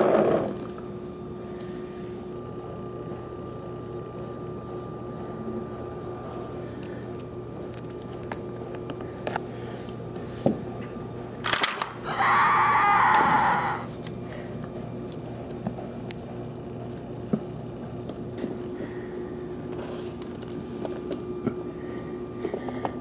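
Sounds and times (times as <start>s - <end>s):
steady low hum: 0.0s - 23.0s
loud scream: 12.0s - 13.9s.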